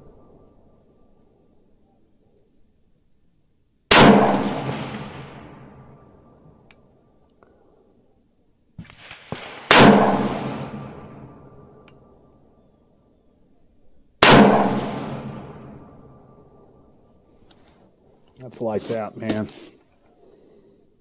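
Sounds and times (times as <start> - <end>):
rifle shots with echo: 3.9 - 6.5, 8.8 - 11.8, 14.2 - 16.6.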